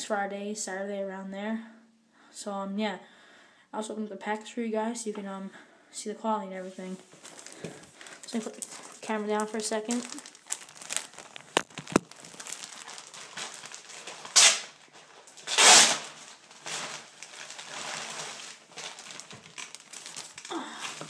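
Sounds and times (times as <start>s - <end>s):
plastic bag crinkling: 6.7s - 21.0s.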